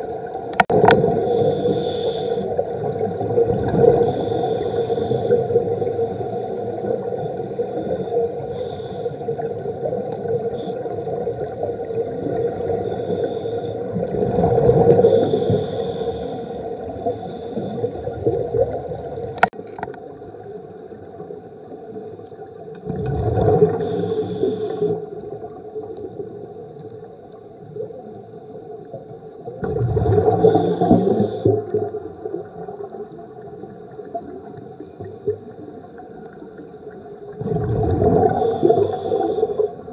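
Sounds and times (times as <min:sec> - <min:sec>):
muffled underwater hum: 0:00.0 - 0:29.4, 0:30.2 - 0:39.9
bubbling exhalation: 0:37.4 - 0:38.7.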